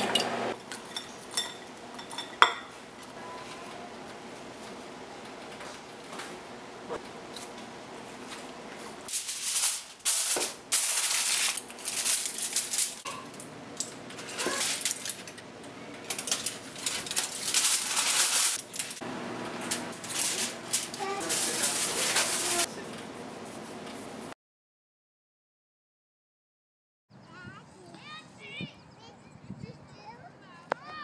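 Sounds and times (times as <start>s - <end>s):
aluminium foil crinkling: 9.0s - 23.1s.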